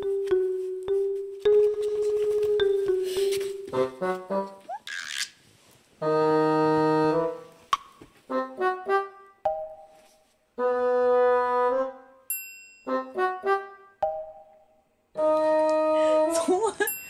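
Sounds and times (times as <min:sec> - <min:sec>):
background music: 0:00.0 - 0:04.7, 0:06.0 - 0:12.3, 0:12.9 - 0:16.8.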